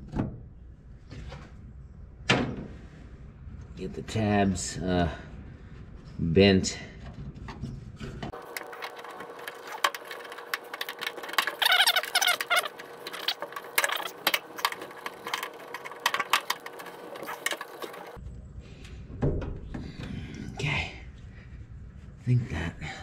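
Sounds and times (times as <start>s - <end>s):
squeaking metal scrape: 8.6s - 18.2s.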